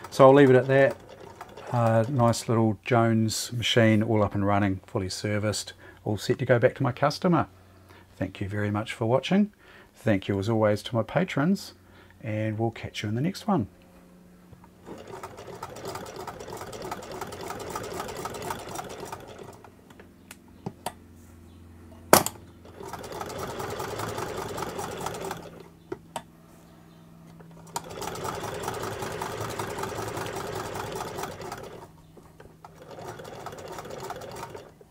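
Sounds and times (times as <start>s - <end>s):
hand-cranked sewing machine stitching: 0.0s - 2.5s, 14.8s - 19.7s, 22.7s - 25.7s, 27.6s - 31.9s, 32.6s - 34.8s.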